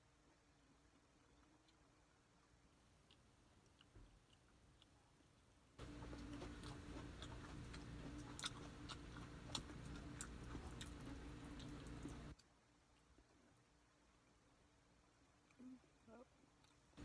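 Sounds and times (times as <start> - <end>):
person chewing food: 0.5 - 13.6, 16.5 - 17.0.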